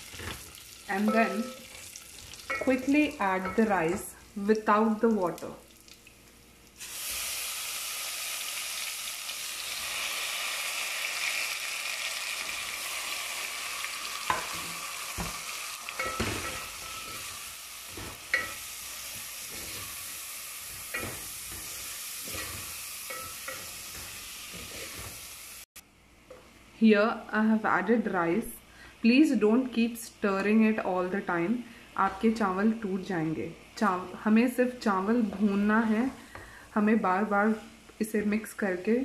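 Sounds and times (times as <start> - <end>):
rice sizzling in hot oil: 0.0 - 3.2, 6.7 - 25.7.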